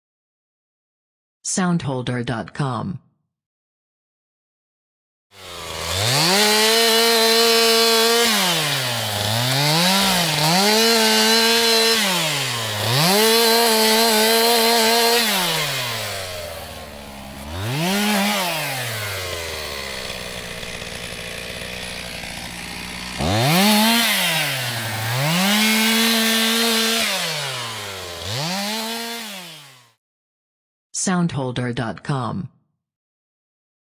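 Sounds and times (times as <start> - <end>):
chainsaw sawing wood: 5.3 - 30.0.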